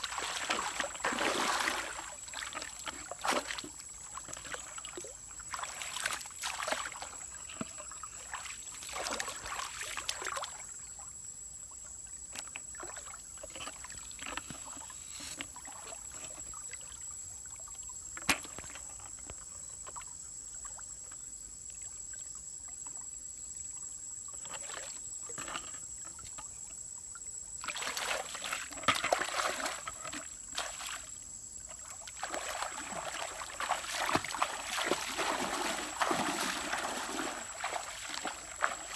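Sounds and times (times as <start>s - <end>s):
water splashing from wading: 0.0s - 10.7s, 27.6s - 31.2s, 31.8s - 38.9s.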